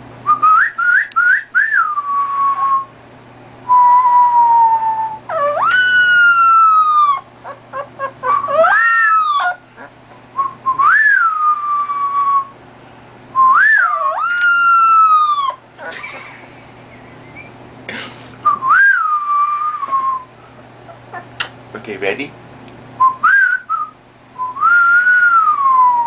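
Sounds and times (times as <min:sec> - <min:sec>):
puppy whistle-like calls: 0:03.7 - 0:12.6, 0:13.4 - 0:16.0, 0:18.5 - 0:21.4, 0:23.0 - 0:26.0.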